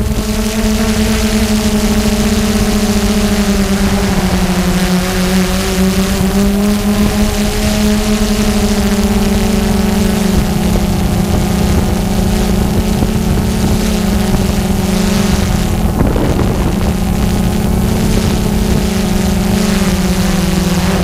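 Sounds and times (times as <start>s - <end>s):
drone propellers humming: 0.0s - 21.0s
wind noise on microphone: 0.0s - 21.0s.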